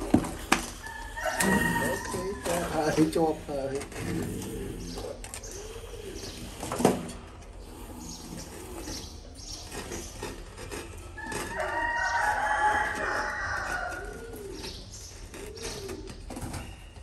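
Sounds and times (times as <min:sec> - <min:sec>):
dove cooing: 0:00.7 - 0:17.0
rooster crowing: 0:00.8 - 0:02.7, 0:11.2 - 0:14.3.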